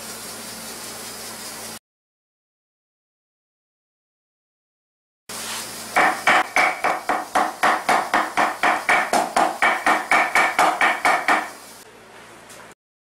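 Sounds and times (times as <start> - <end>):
knife chopping meat on wood: 6.0 - 11.6.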